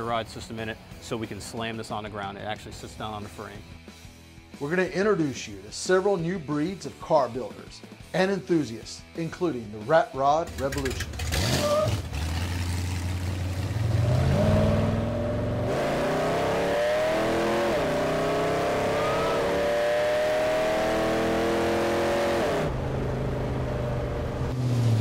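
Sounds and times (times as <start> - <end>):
pickup truck engine accelerating: 10.5 - 25.0.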